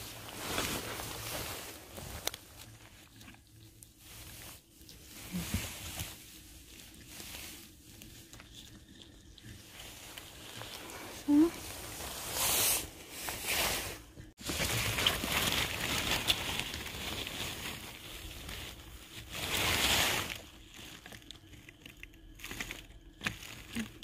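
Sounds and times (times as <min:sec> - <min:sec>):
rustling vegetation: 0:00.0 - 0:21.6.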